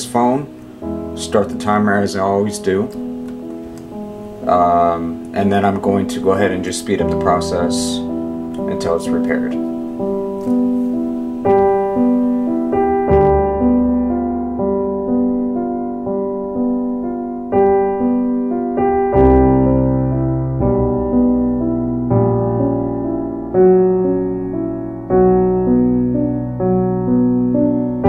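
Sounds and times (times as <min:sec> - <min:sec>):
gentle piano chords: 0:00.0 - 0:28.0
deeper bass line: 0:13.1 - 0:14.6.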